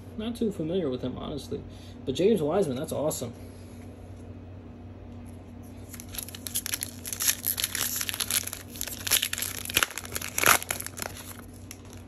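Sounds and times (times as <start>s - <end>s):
foil wrapper tearing and crinkling: 5.8s - 12.0s
foil ripping: 5.9s - 12.0s.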